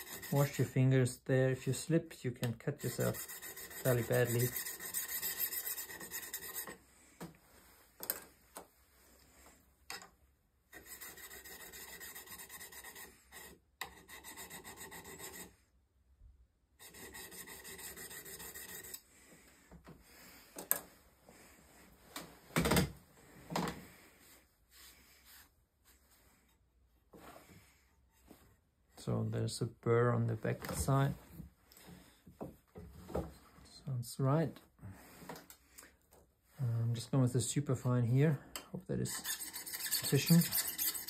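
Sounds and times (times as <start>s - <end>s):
honing paddle rubbing on steel: 2.8s - 6.8s, 39.1s - 41.0s.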